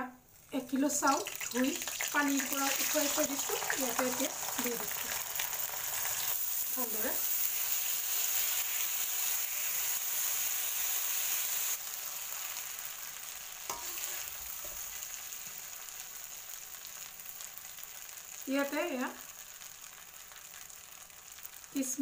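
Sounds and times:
rice sizzling in hot oil: 0.3s - 22.0s
metal spoon clicking on pan: 13.7s - 14.1s.

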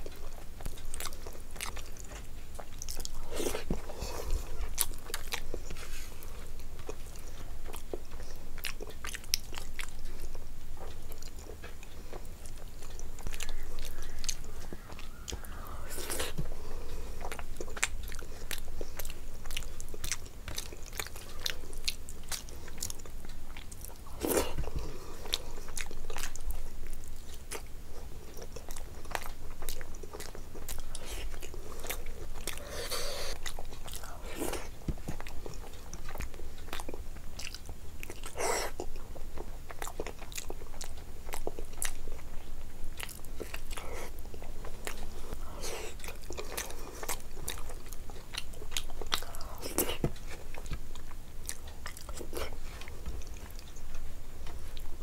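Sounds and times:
person chewing food: 0.0s - 55.0s.

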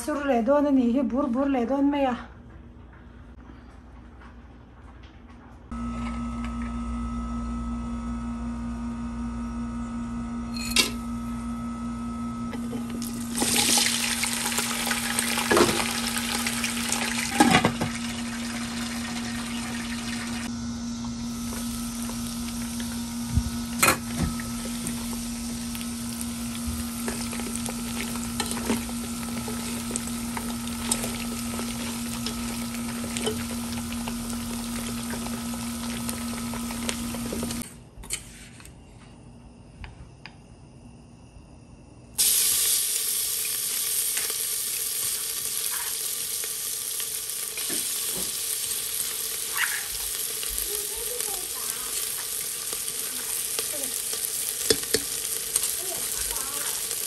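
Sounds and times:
steady low hum: 2.2s - 42.3s
aromatics sizzling in hot oil: 9.0s - 37.6s, 42.2s - 57.0s
chicken feet sizzling in pot: 12.5s - 37.6s, 42.2s - 57.0s.

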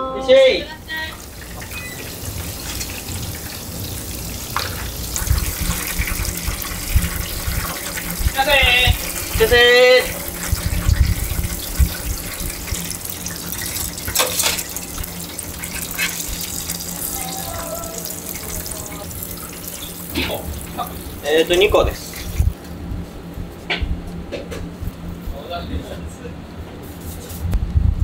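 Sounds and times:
food frying in deep fryer: 0.4s - 22.8s
person calling out: 16.9s - 19.2s.

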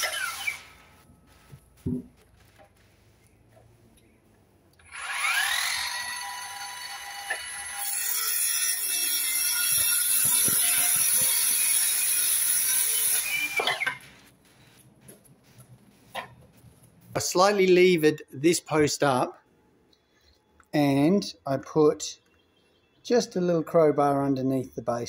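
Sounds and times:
circular saw whining: 0.0s - 1.0s, 4.8s - 14.1s
saw cutting through wood: 0.0s - 1.0s, 4.8s - 14.8s.

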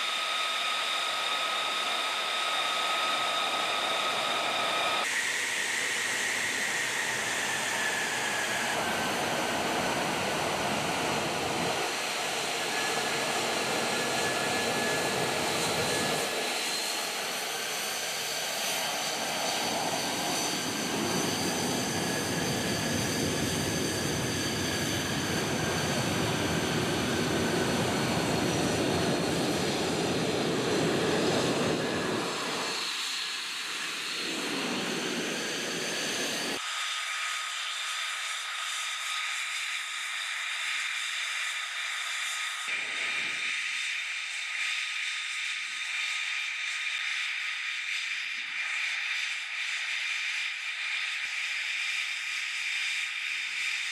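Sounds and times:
jet engine roar with whine: 0.0s - 53.9s.

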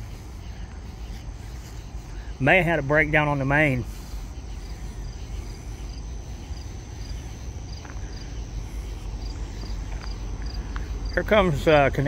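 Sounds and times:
cricket chirping: 0.0s - 12.0s
low steady rumble: 0.0s - 12.0s.

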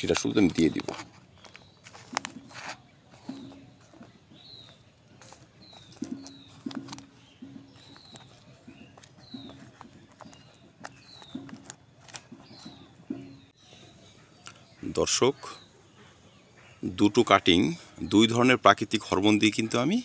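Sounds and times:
fingers pressing soil: 0.0s - 13.5s
small birds chirping: 0.0s - 20.0s.

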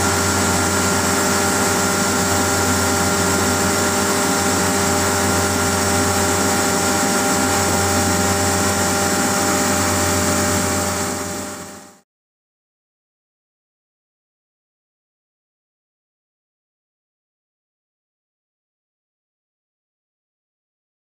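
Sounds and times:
air compressor humming: 0.0s - 12.0s.

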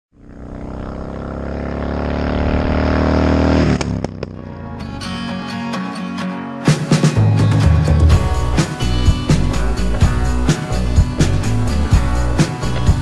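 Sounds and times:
motorcycle engine running: 0.1s - 4.8s
guitar music: 4.3s - 13.0s.

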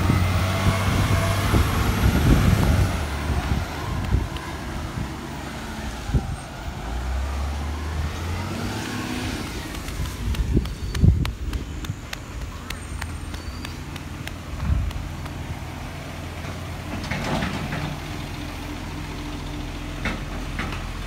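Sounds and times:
truck engine running: 0.0s - 6.4s, 8.0s - 21.0s.

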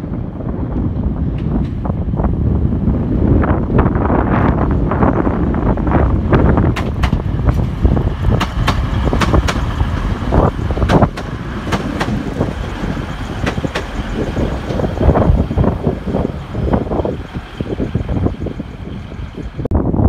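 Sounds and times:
train rumbling past: 0.0s - 20.0s
wheels clacking over rail joints: 4.3s - 19.7s.

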